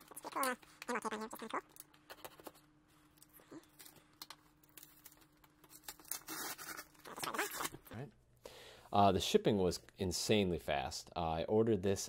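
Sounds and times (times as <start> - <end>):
packing tape tearing: 3.7 - 7.9.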